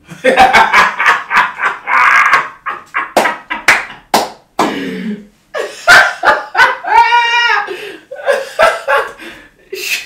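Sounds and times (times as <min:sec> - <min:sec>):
hands clapping: 0:03.1 - 0:04.8.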